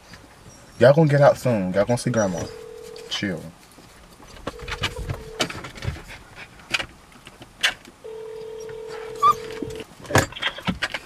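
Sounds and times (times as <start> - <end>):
phone ringback tone: 2.4 - 3.2, 4.5 - 5.5, 8.0 - 9.8.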